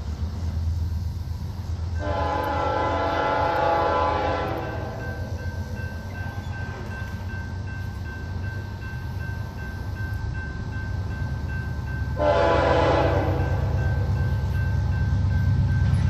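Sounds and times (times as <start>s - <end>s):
locomotive air horn blast: 2.0s - 5.0s, 12.2s - 13.8s
crossing bell dinging: 3.5s - 16.0s.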